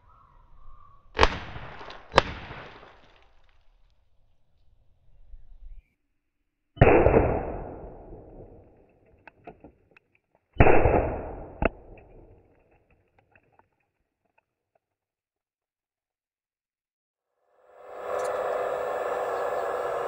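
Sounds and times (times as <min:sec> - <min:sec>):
blasting charge bangs: 0:01.2 - 0:03.1, 0:06.8 - 0:08.6, 0:10.6 - 0:12.3
sharp crack: 0:01.2 - 0:04.0, 0:06.8 - 0:10.0, 0:10.6 - 0:13.7.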